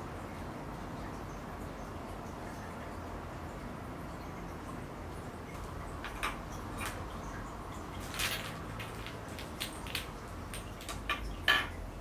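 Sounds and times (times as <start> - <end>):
plastic bag crinkle: 8.0 - 11.1
plastic balls knocking on wood: 8.2 - 11.8.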